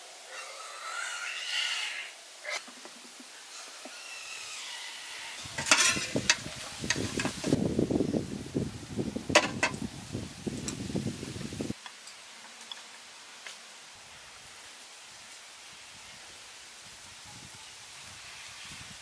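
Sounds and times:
metal spoon scraping steamer tray: 5.3 - 7.6.

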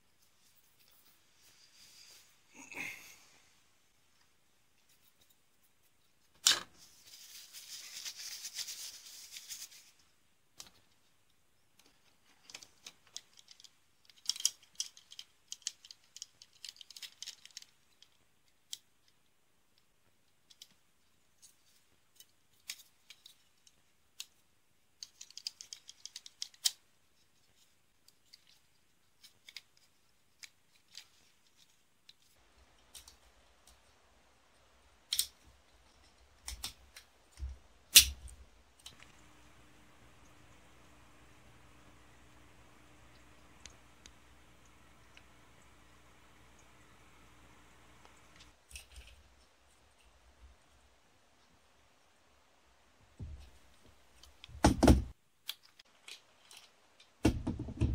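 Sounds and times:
rustling: 0.0 - 19.2, 20.4 - 41.8
plastic parts clicking: 11.8 - 20.8, 21.4 - 26.9, 35.1 - 39.1, 54.2 - 57.8.

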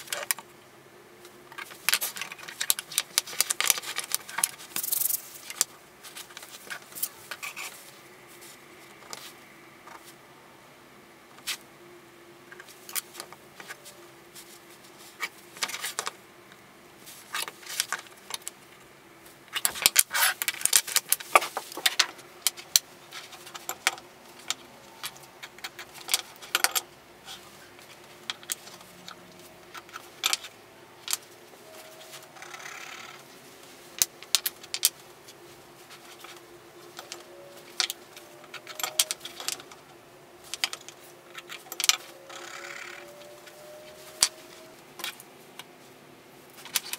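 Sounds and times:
faint steady hum: 0.0 - 46.9
wooden blocks and tools clattering: 1.5 - 7.9, 19.5 - 33.2, 35.8 - 45.2.

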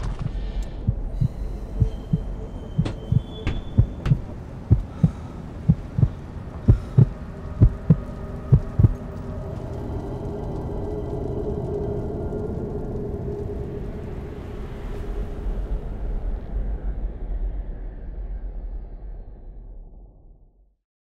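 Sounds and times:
low drone: 0.0 - 20.2
heartbeat thumps: 0.8 - 9.0.

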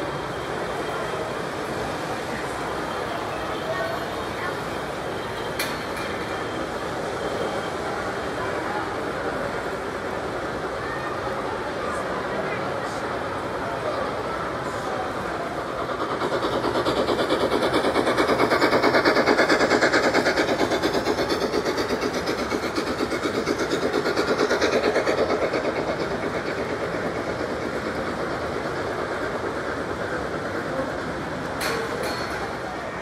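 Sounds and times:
model train wheels clattering: 4.0 - 7.4, 15.1 - 33.0.

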